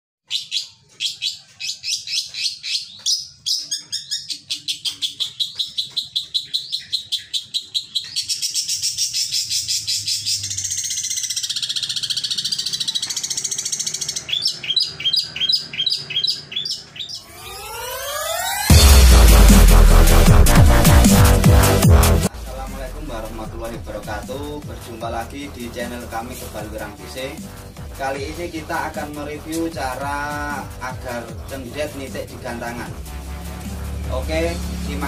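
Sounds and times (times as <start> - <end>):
shrike singing: 0.3 - 35.0
rising electronic tone: 13.8 - 24.3.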